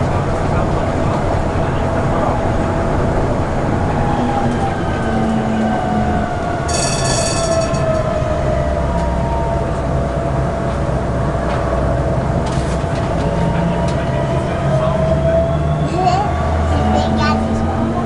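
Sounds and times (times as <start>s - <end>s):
tram rumbling on rails: 0.0s - 18.0s
tram wheel squeal: 4.0s - 9.8s.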